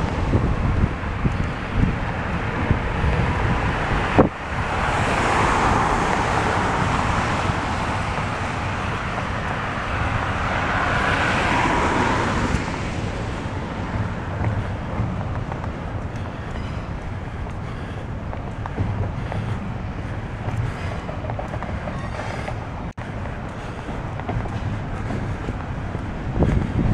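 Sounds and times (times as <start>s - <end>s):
wind rumble on microphone: 0.0s - 26.9s
tyres hissing on wet road: 3.3s - 13.5s.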